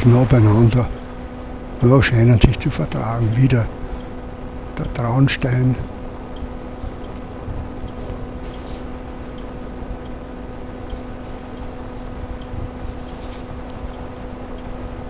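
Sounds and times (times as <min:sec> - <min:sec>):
wind rushing over microphone: 0:07.2 - 0:10.0.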